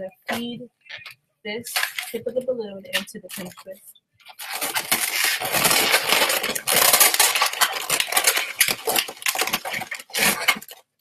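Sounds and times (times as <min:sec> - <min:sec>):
balloons squeaking and rubbing: 0:03.2 - 0:11.0.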